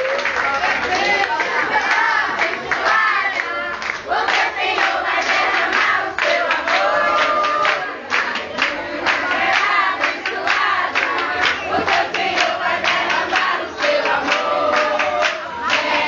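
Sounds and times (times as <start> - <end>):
clapping in time: 0.0 - 16.0
group singing birthday song: 0.0 - 16.0.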